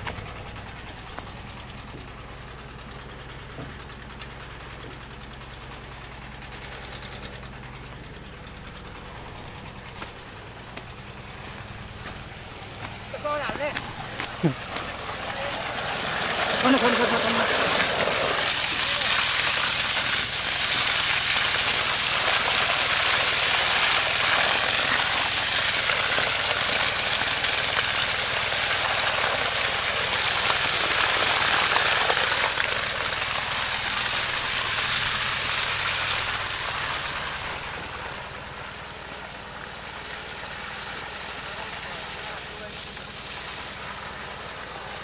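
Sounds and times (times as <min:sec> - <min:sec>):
engine running steadily: 0:00.0 - 0:45.0
sludge gushing from hose: 0:13.0 - 0:45.0.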